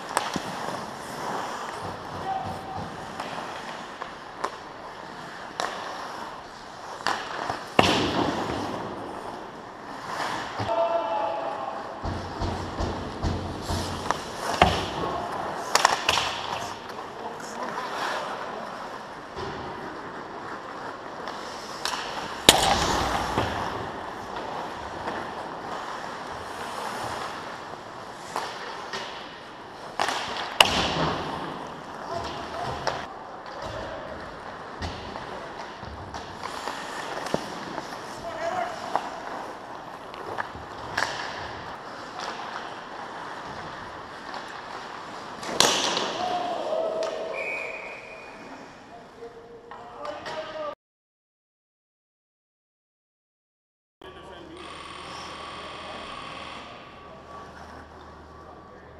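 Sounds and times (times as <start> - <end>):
skates scraping on ice: 0.0 - 10.8, 11.4 - 49.2
hockey sticks and puck clacking: 0.0 - 48.7
sharp crack of hockey stick: 45.4 - 46.3.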